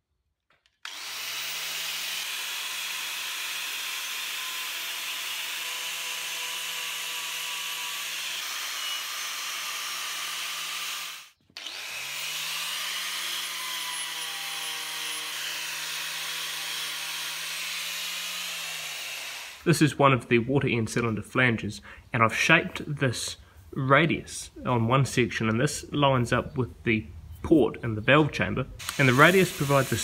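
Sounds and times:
angle grinder on steel pipe: 0.9s - 19.7s, 28.8s - 30.0s.

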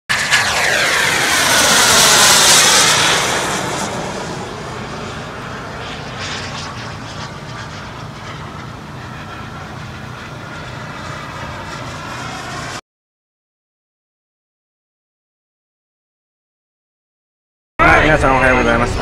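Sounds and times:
model jet turbine passing: 0.1s - 12.8s.

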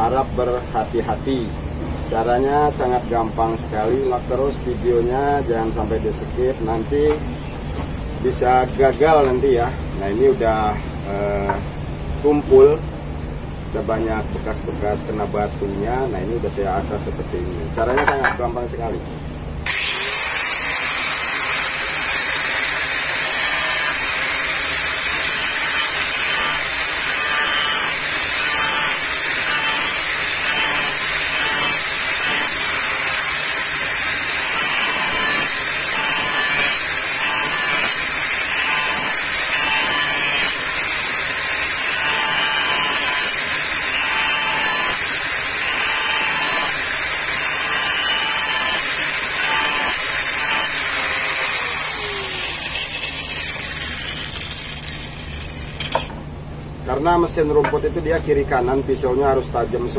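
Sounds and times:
angle grinder grinding steel: 19.6s - 56.3s.

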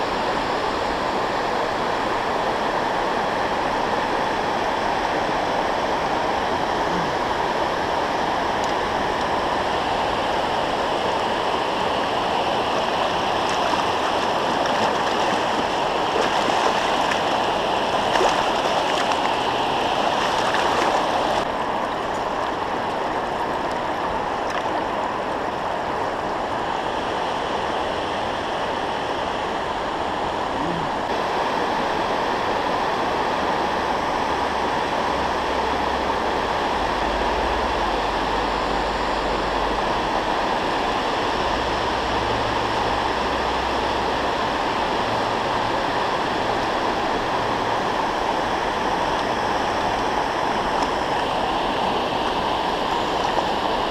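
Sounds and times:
river water pouring over dam: 0.0s - 53.9s
water splashing: 8.4s - 26.0s.

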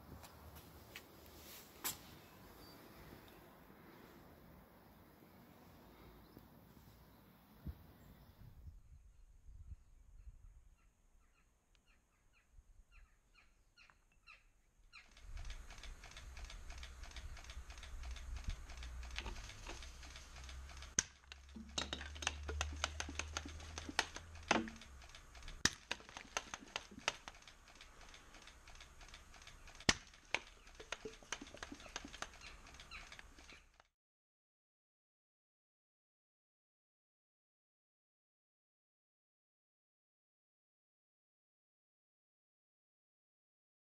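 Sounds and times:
faint bird chirps: 2.1s - 3.5s, 4.9s - 15.2s, 30.5s - 33.8s
smoke pellet hissing and crackling: 22.3s - 32.9s.

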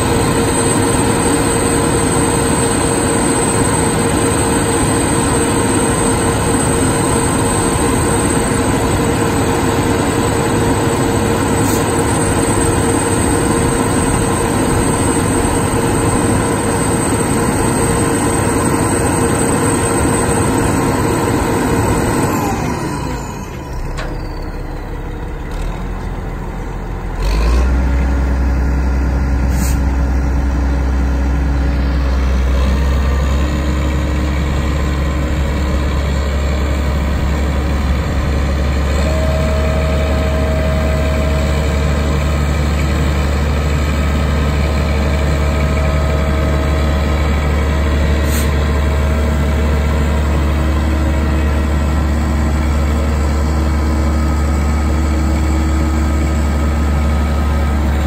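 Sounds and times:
deep steady engine hum: 0.0s - 58.0s
diesel engine high revs: 27.1s - 30.0s.

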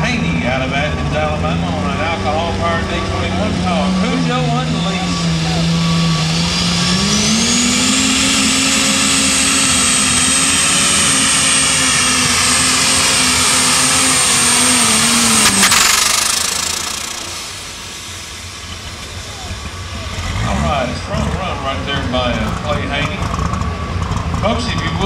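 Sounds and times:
high turbo whine: 0.0s - 25.0s
tractor engine running flat out: 0.0s - 25.0s
sharp crack: 15.2s - 19.2s.

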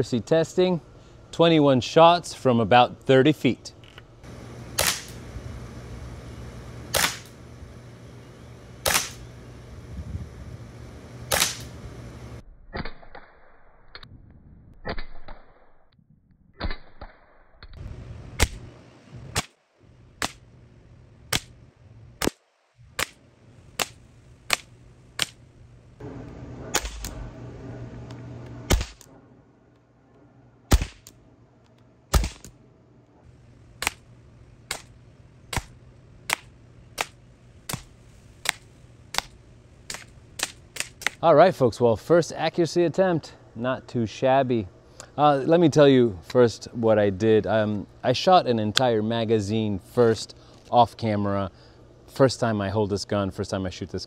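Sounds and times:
pellet pistol shots: 4.7s - 5.2s, 6.9s - 7.4s, 8.8s - 9.2s, 11.3s - 11.7s, 22.2s - 25.4s, 26.7s - 27.2s, 28.7s - 29.1s, 30.7s - 31.1s, 32.1s - 32.5s, 33.8s - 34.1s, 34.7s - 41.2s.

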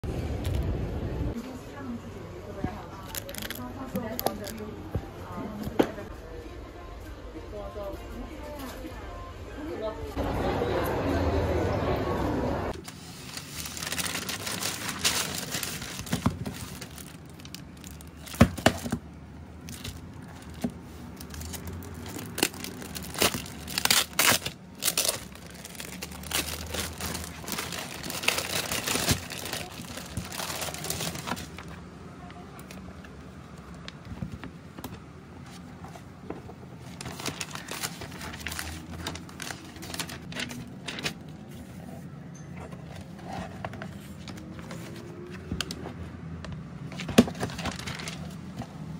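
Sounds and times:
plastic wrapping crinkling and tearing: 3.0s - 4.6s, 12.8s - 19.0s, 19.6s - 31.8s, 36.9s - 41.3s, 47.3s - 48.4s
magazine pages rustling: 12.8s - 19.0s, 19.6s - 31.7s, 36.8s - 41.8s, 43.0s - 48.6s.

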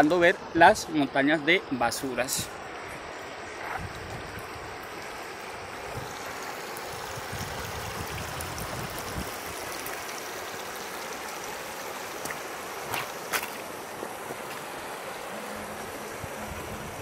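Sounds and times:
river running over stones: 1.9s - 17.0s.

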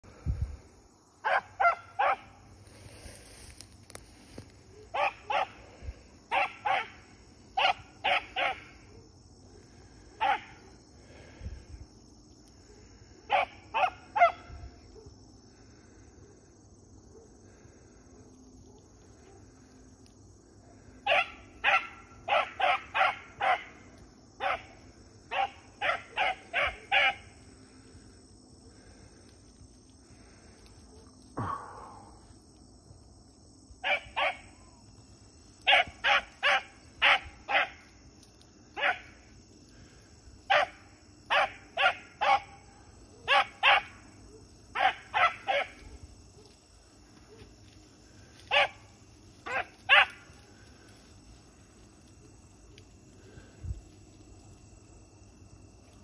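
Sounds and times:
faint insect chirring: 0.0s - 56.0s
hound barking: 1.2s - 2.4s, 4.7s - 5.6s, 6.3s - 7.0s, 7.6s - 9.0s, 10.2s - 10.8s, 13.3s - 15.1s, 21.0s - 27.3s, 33.8s - 34.6s, 35.6s - 37.9s, 38.8s - 39.2s, 40.5s - 47.5s, 48.4s - 48.8s, 49.4s - 50.4s.

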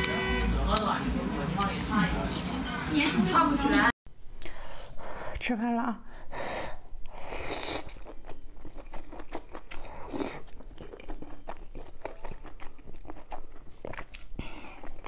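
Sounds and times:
slurping soup: 7.0s - 10.8s
wet chewing with mouth clicks: 7.0s - 15.0s.

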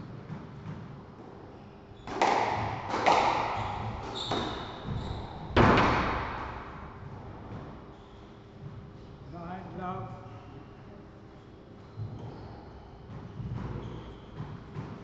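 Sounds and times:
squash ball cracks echoing: 2.1s - 7.6s.

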